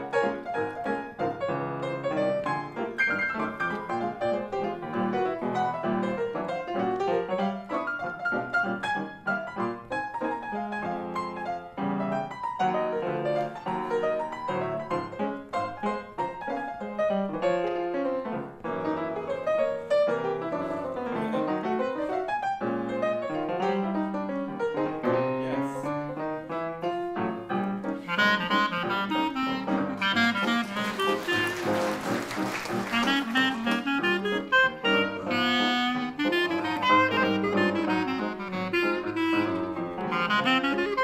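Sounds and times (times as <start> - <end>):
grand piano playing: 0.0 - 41.0
clarinet playing: 27.9 - 41.0.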